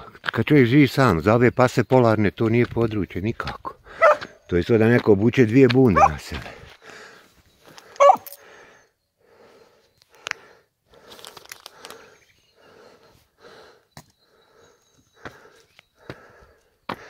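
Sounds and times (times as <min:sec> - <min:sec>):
footsteps on asphalt: 0:02.4 - 0:07.0.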